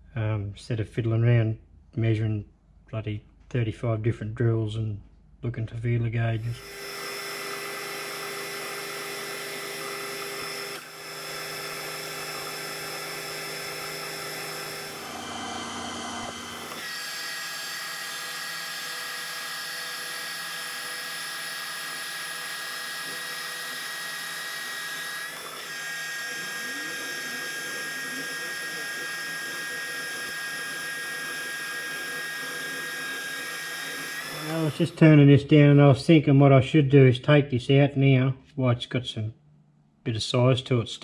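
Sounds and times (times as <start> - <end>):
metal lathe whining: 6.5 - 35.0.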